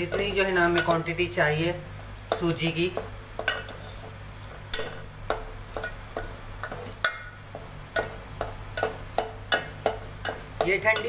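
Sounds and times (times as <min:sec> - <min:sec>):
metal spoon clinking in a pan: 0:03.4 - 0:04.0, 0:08.0 - 0:11.0.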